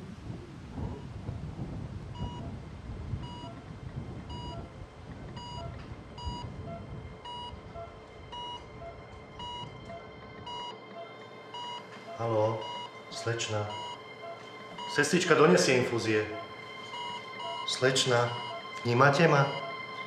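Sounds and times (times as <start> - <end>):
patient monitor beeping: 2.2 - 2.5, 3.2 - 3.6, 4.3 - 20.0
softer lower beep: 4.3 - 4.7, 5.4 - 15.1, 16.3 - 18.8, 19.4 - 20.0.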